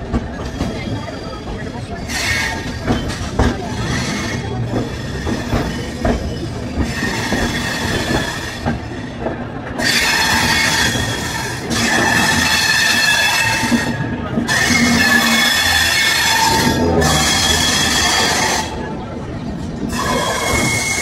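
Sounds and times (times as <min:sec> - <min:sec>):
wheels knocking on rail joints: 0:00.0 - 0:18.9
train wheels rolling on tracks: 0:00.0 - 0:21.0
high-pitched wheel squeal: 0:09.8 - 0:18.8.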